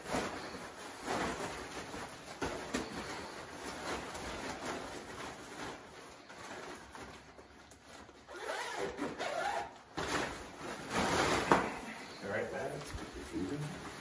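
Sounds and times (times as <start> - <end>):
fabric rustling: 0.0 - 14.0
zipper being pulled open: 8.3 - 9.8.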